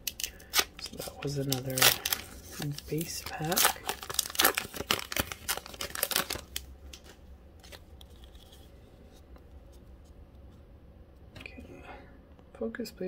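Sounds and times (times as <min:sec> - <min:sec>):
foil wrapper crinkling and tearing: 0:00.0 - 0:08.7.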